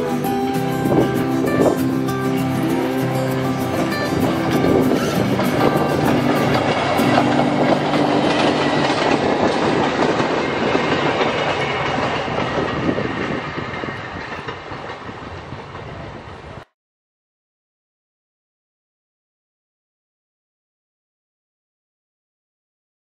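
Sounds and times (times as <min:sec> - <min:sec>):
wheels clicking over rail joints: 0:00.0 - 0:16.6
rail cars rolling past: 0:00.0 - 0:16.7.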